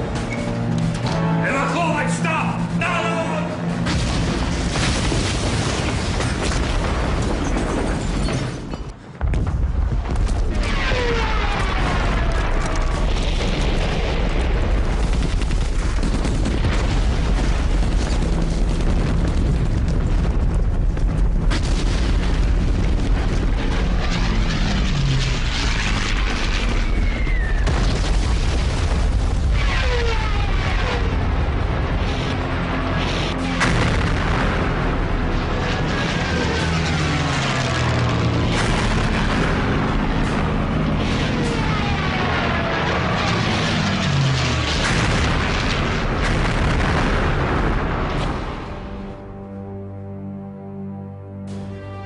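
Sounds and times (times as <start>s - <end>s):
heavy rumble of explosions: 0.0s - 49.7s
falling bomb whistles: 26.6s - 27.9s.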